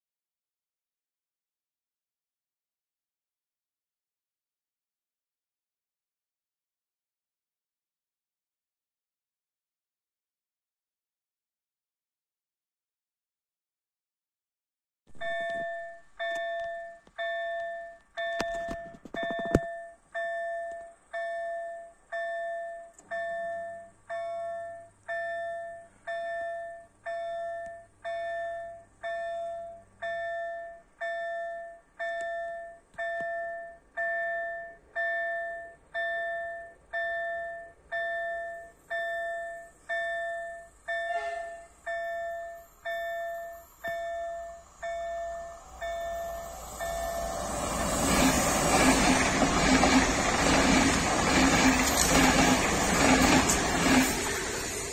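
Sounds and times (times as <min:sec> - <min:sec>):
level crossing bell dinging: 0:15.2 - 0:47.5.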